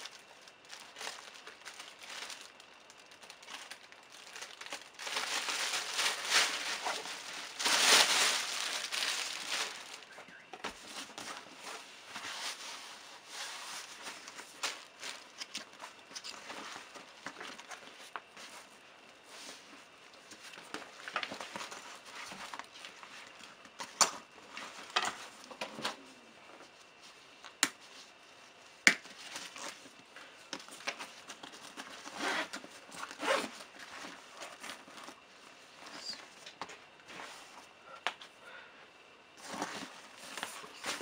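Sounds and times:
fabric bag rustling: 3.2s - 17.0s.

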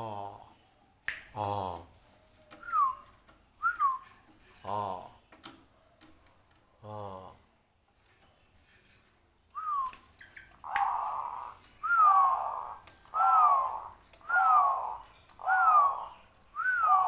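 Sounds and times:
dove calling: 9.6s - 17.0s.

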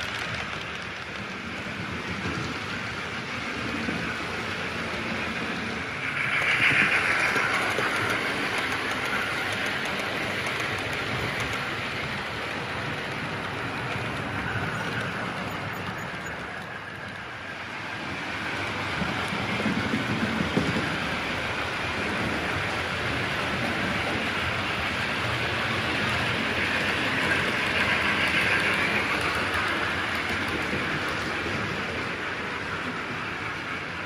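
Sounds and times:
model trains rumbling on track: 0.0s - 34.0s.

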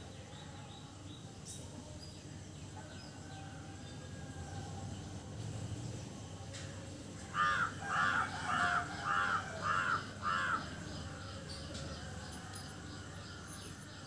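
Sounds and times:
crow cawing: 7.4s - 10.8s.

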